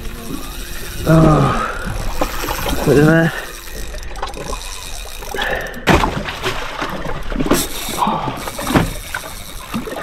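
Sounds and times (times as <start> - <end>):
water slapping against boat: 1.2 - 10.0
loud splash: 5.9 - 7.5.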